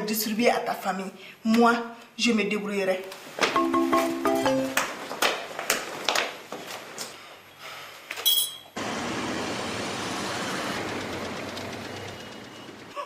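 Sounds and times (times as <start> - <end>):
city traffic noise: 8.3 - 13.0.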